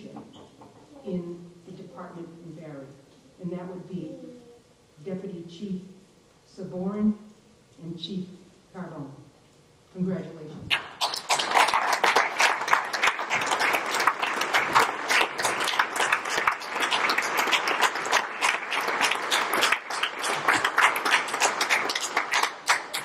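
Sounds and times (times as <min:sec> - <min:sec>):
audience applauding: 0:10.7 - 0:23.0.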